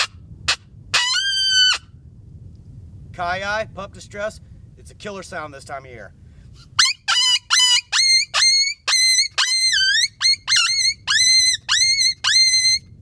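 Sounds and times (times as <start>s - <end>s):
coyote howler high yelps: 0.0s - 1.9s, 6.8s - 12.8s.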